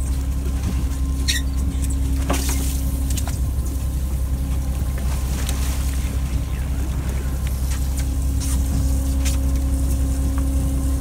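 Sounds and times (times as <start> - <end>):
boat engine droning: 0.0 - 11.0
short high squeak: 1.2 - 1.6.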